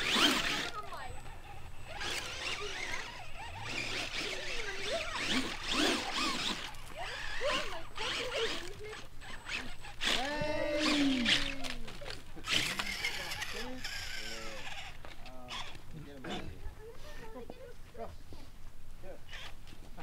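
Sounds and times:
toy car electric motor whining: 0.0 - 17.4, 19.3 - 19.6
person calling out: 10.1 - 11.8.

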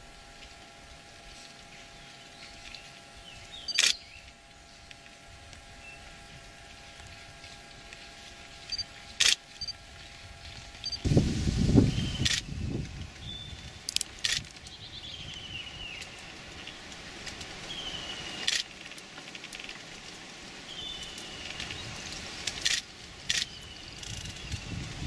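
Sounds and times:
sharp clicks: 3.7 - 4.0.

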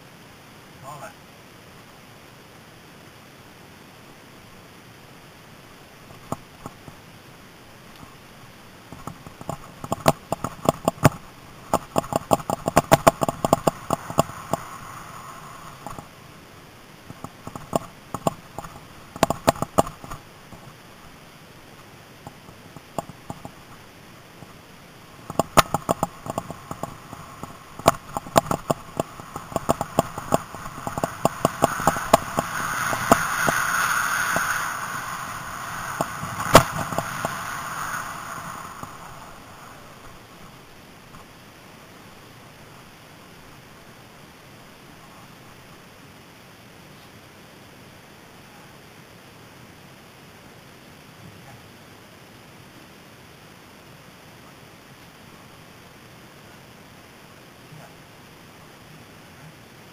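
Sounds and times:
rushing noise: 5.7 - 44.0
mountain bike rattling over bumps: 8.9 - 16.2, 17.1 - 20.8, 25.2 - 40.2.

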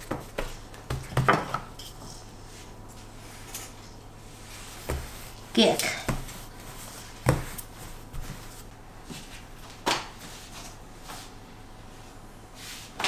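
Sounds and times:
rolling pin knocking on wooden board: 7.2 - 7.6.

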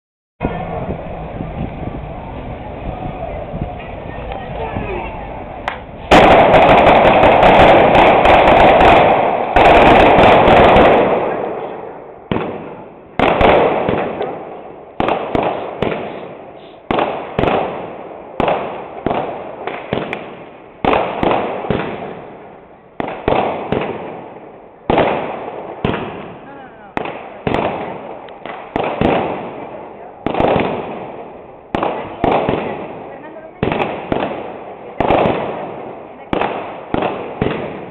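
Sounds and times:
firecrackers banging with echoes: 0.4 - 37.9.

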